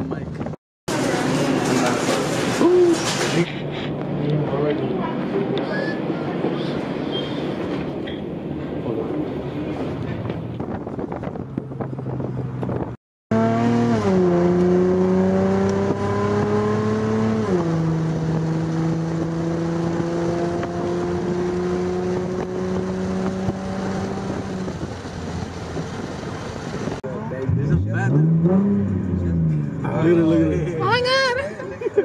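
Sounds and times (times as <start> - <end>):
car engine accelerating: 8.8 - 30.8.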